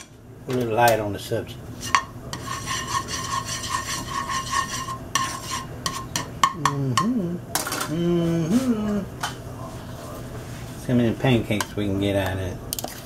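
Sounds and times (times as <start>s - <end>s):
spoon stirring in a bowl: 1.8s - 6.8s, 11.4s - 13.0s
man humming: 6.5s - 9.2s.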